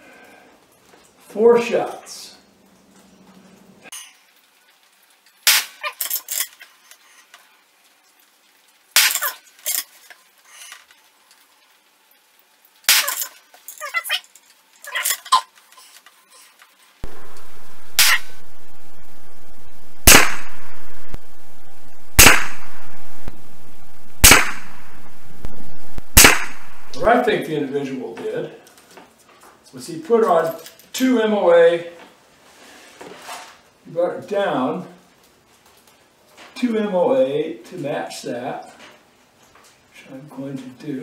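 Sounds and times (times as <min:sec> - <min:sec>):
sharp cracks: 0:05.4 - 0:06.7, 0:08.9 - 0:10.0, 0:12.8 - 0:13.9, 0:17.0 - 0:27.1
rifle shots: 0:17.0 - 0:27.1
steady rushing noise: 0:17.0 - 0:27.2.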